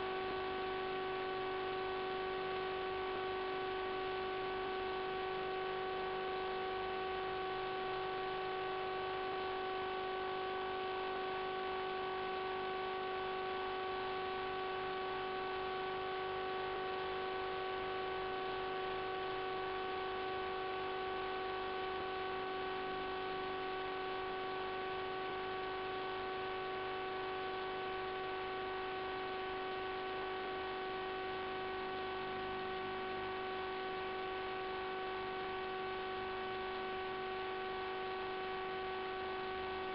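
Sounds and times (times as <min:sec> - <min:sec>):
electrical hum with hiss: 0:00.0 - 0:39.9.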